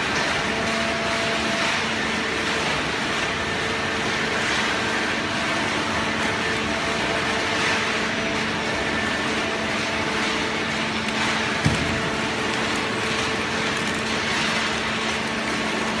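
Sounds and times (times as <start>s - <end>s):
baler machine hum: 9.2s - 16.0s.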